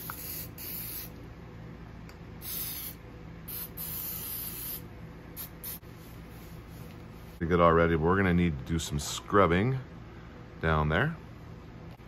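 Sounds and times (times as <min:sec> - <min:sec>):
aerosol spray hissing: 0:00.0 - 0:01.1, 0:02.4 - 0:04.8, 0:05.4 - 0:05.8.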